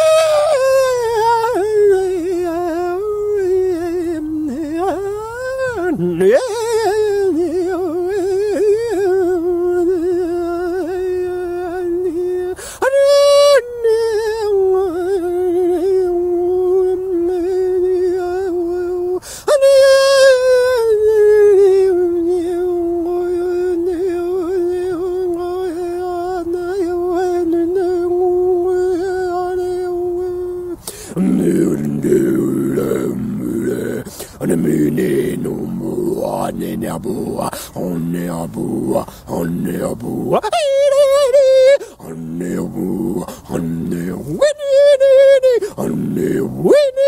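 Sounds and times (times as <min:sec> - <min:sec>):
man chanting a held note: 0:28.9 - 0:47.0.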